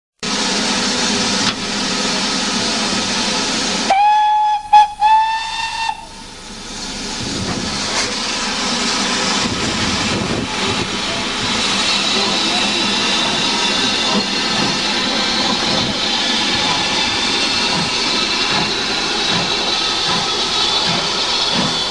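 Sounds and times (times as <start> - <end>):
steam locomotive hissing: 0.2 - 21.9
steam whistle blasts: 3.9 - 6.3
steady rumble: 6.1 - 21.9.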